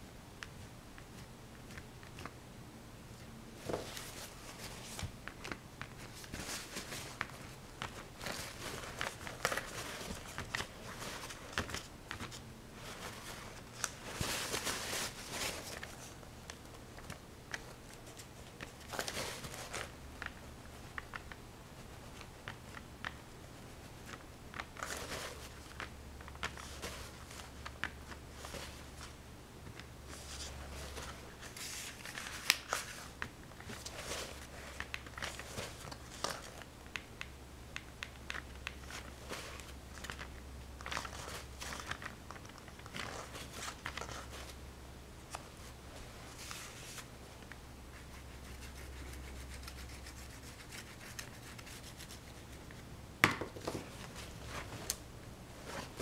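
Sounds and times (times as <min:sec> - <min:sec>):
faint low hum: 0:00.0 - 0:56.0
rubbing and scratching: 0:47.9 - 0:52.8.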